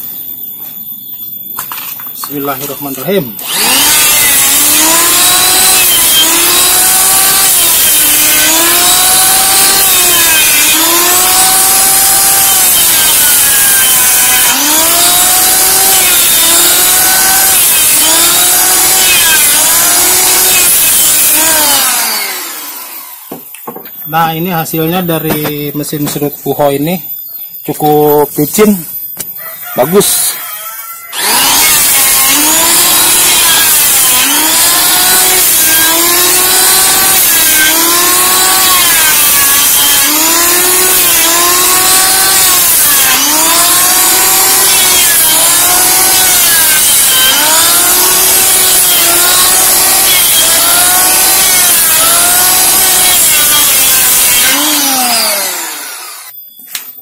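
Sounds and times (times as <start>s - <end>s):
electric hand planer shaving wood: 3.4s - 23.4s, 31.1s - 56.3s.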